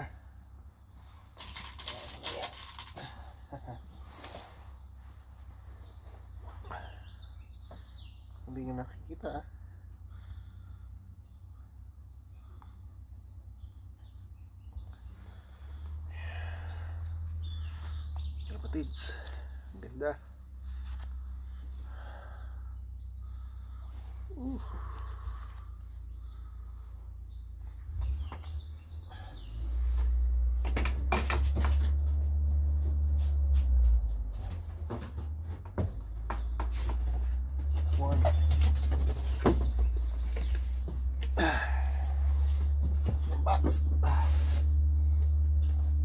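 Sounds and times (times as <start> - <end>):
rustle of feathers and hands: 0.8 - 8.0, 23.8 - 28.8, 29.4 - 41.3.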